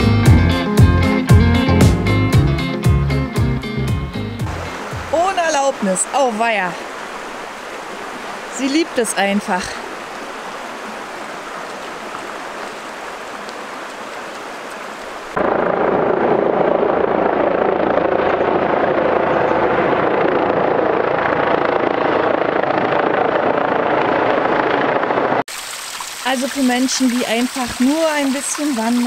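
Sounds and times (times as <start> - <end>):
river rushing over gravel: 4.4 - 15.4, 25.4 - 29.0
helicopter flying overhead: 15.3 - 25.4.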